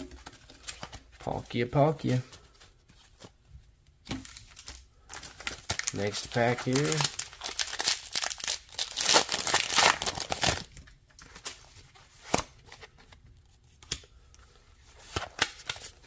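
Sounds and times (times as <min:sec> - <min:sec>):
foil pack tearing and crinkling: 0:05.1 - 0:10.7.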